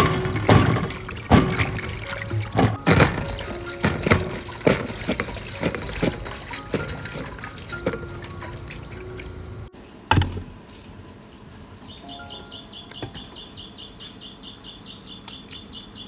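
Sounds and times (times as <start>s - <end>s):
knocks and clatters: 0.0s - 8.1s
water trickling and splashing: 0.0s - 9.7s.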